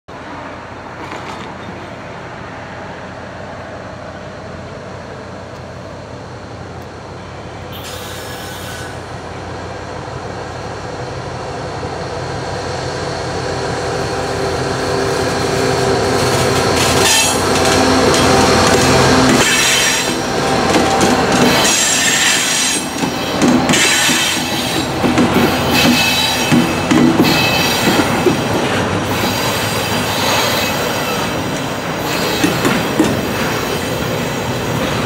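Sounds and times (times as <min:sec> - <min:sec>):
locomotive engine drone: 0:00.1 - 0:35.0
train rail noise: 0:00.1 - 0:35.0.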